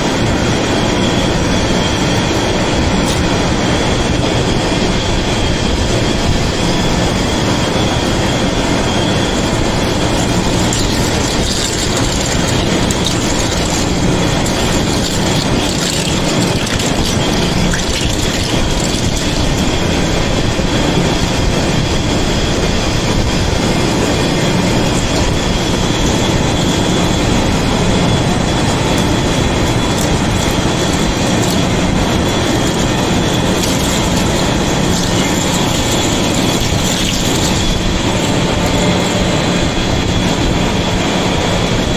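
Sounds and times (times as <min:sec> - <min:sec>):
thin high whine: 0:00.0 - 0:41.9
lathe grinding metal: 0:07.7 - 0:40.4.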